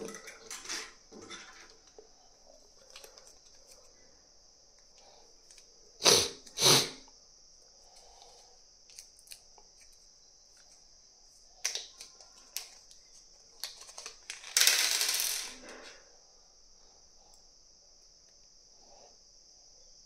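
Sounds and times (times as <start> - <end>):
plastic bag crinkling: 13.6 - 14.5.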